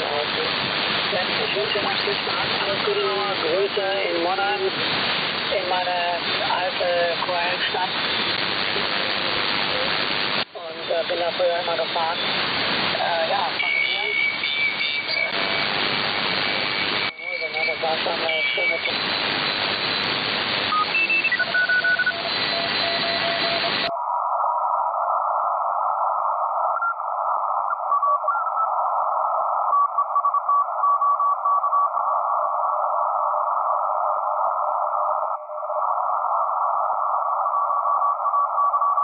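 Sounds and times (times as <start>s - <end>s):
radio band noise hiss: 0.0s - 23.9s
radio tuning whistles: 11.0s - 39.0s.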